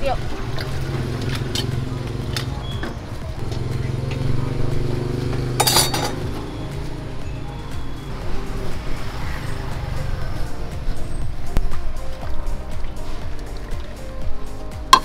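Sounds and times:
ceramic bowls and utensils clinking: 5.6s - 6.4s.

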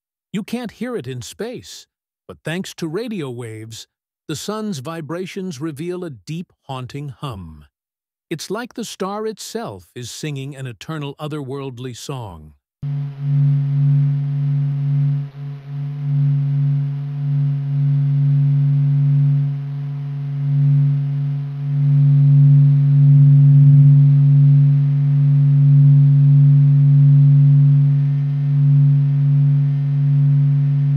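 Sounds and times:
deep haunting hum: 12.8s - 30.9s.

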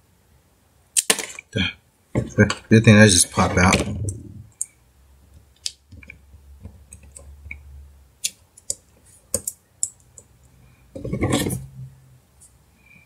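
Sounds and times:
clicks and taps of small parts: 8.2s - 11.1s.

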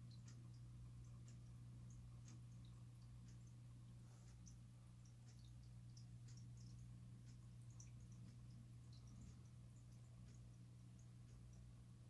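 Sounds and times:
aquarium air pump hum: 0.0s - 12.0s.

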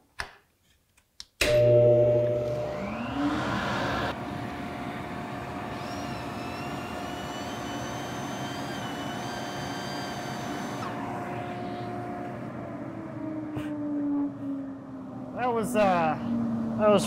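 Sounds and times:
steady hum: 10.8s - 17.0s.

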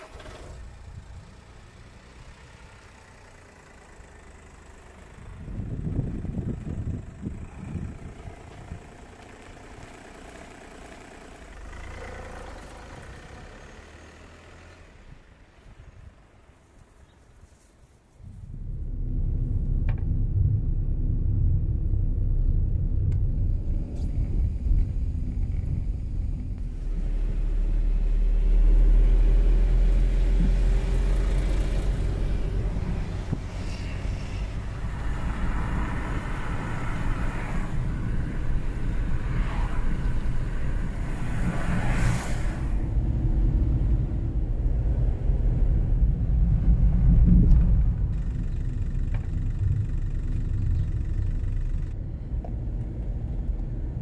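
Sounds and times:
car engine and road rumble: 0.0s - 54.0s
tyre and passing traffic noise: 0.0s - 54.0s.

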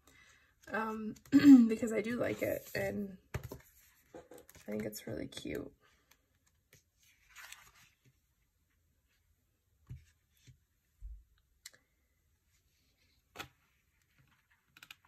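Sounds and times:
paper rustling: 7.0s - 8.1s.

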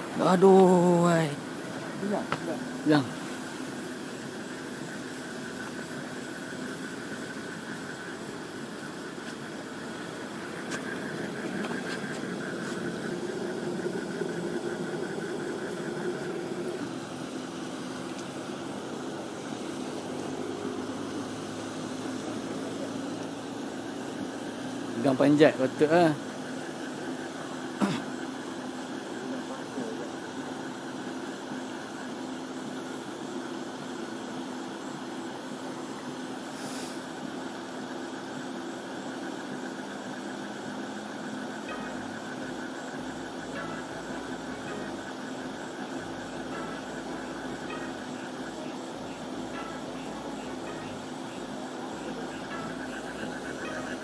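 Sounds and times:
pond aerator motor drone: 0.0s - 36.5s, 37.1s - 54.0s
hiss: 26.9s - 41.8s.

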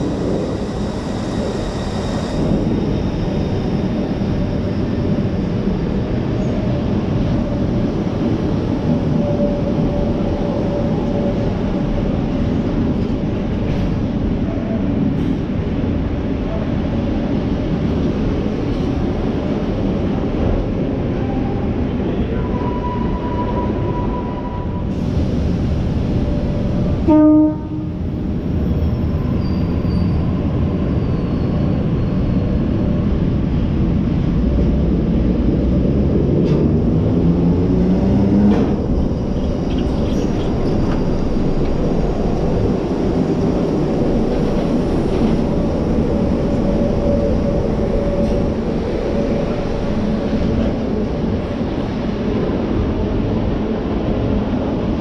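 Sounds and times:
rising train whine: 0.0s - 55.0s
train wheels rumbling: 0.0s - 55.0s
train horn toot: 27.0s - 28.0s.

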